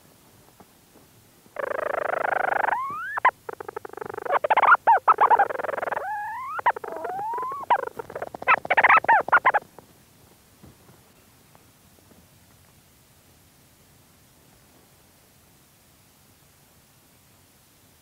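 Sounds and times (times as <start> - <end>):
bird stuttering chatters: 1.6 - 9.6
petrel churring trill: 1.6 - 9.6.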